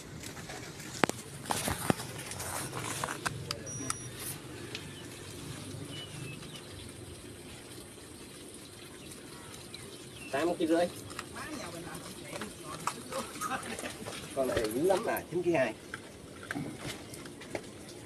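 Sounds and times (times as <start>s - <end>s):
faint outdoor background: 0.0s - 18.0s.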